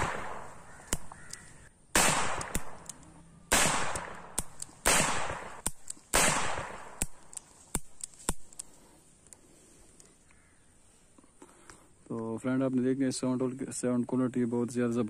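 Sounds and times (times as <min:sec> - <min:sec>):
sharp cracks: 0:00.0 - 0:09.4.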